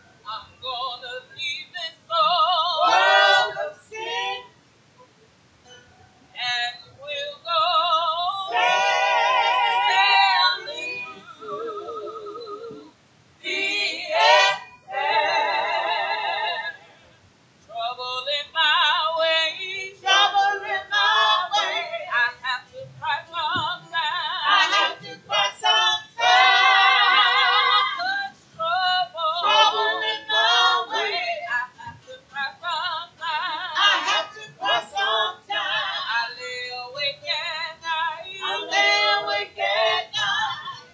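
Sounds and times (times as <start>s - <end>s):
church choir singing: 2.7s - 4.5s, 8.4s - 12.2s, 13.5s - 16.7s, 19.6s - 22.1s, 23.6s - 31.4s, 33.7s - 36.4s, 38.2s - 40.5s.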